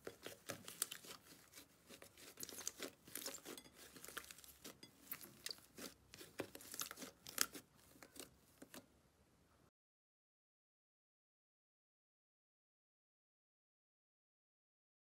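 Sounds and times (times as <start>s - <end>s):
slime crackling and popping: 0.0s - 8.8s.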